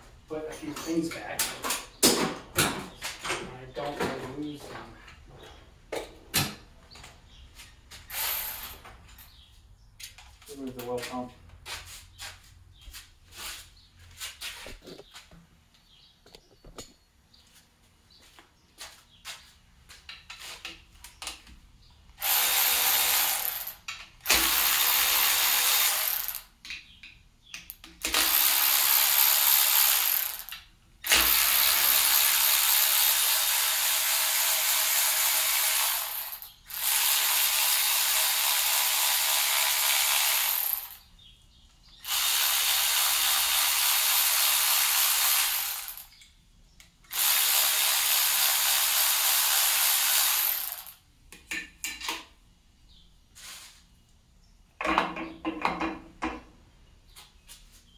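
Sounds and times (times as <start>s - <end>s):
power ratchet running: 8.1s - 8.8s, 22.2s - 26.5s, 28.1s - 41.0s, 42.0s - 46.2s, 47.1s - 51.0s.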